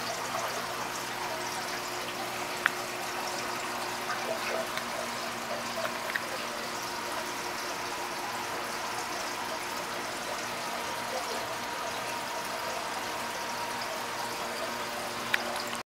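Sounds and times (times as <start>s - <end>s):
aquarium water trickling and bubbling: 0.0s - 15.8s
faint steady hum: 0.0s - 15.8s.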